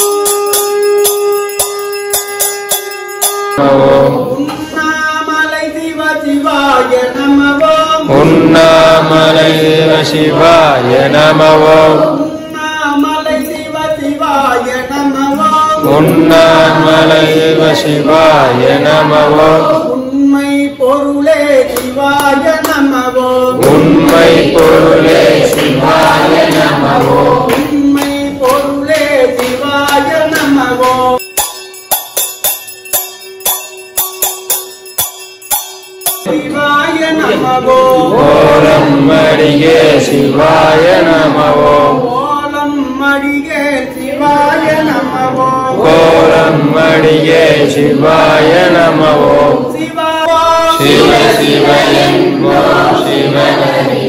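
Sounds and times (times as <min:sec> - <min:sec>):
men chanting: 0:03.6 - 0:31.2, 0:36.3 - 0:54.0
quick evenly spaced strikes: 0:23.6 - 0:36.3.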